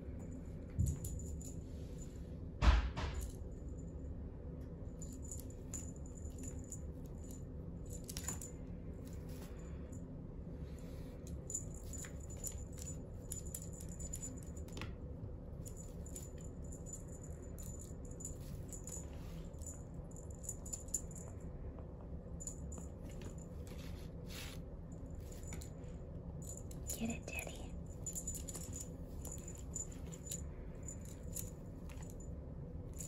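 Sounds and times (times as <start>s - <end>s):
steady low hum: 0.0s - 33.0s
cat toy jingling: 10.9s - 14.7s, 15.6s - 21.3s, 26.4s - 32.3s.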